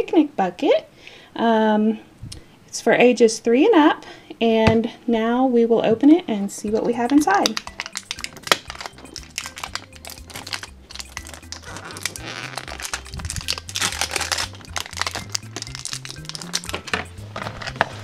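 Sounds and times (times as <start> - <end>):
background music with bass line: 6.7 - 18.0
plastic lid crackling and clicking: 7.1 - 18.0.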